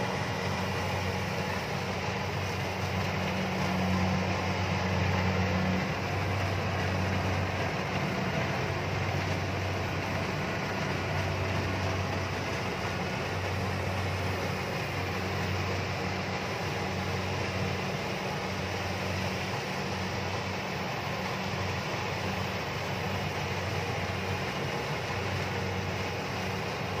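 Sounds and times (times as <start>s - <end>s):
combine harvester engine drone: 0.0s - 27.0s
machine mechanical hum: 0.0s - 27.0s.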